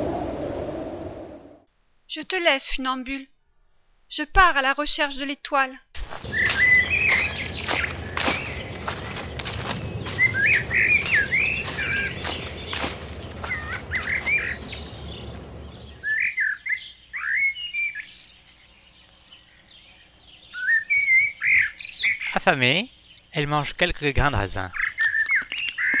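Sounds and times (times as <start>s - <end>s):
footsteps in rustling forest: 6.0s - 16.1s
birds chirping: 6.0s - 26.0s.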